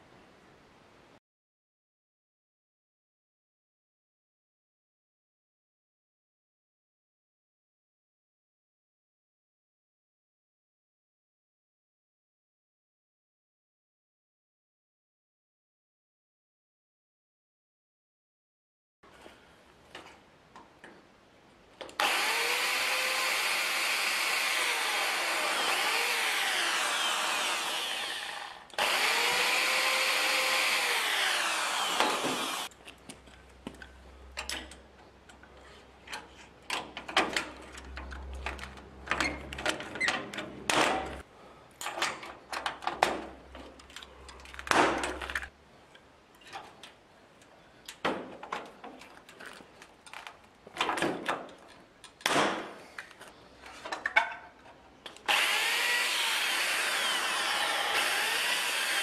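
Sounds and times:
power drill boring through steel: 22.0 - 32.7, 55.3 - 59.0.

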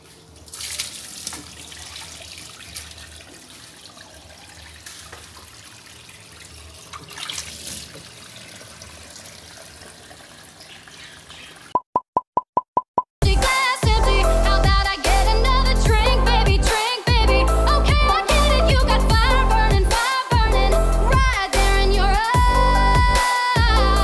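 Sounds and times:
water splashing onto tiled floor: 0.0 - 11.4.

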